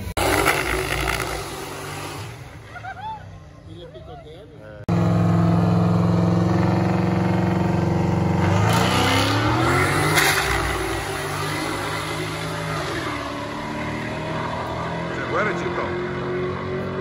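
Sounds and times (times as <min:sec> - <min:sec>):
car engine revving and accelerating: 0:04.9 - 0:17.0.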